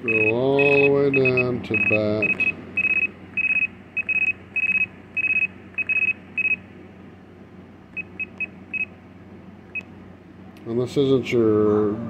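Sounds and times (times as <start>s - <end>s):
radio transmitter beeping: 0.0s - 6.6s.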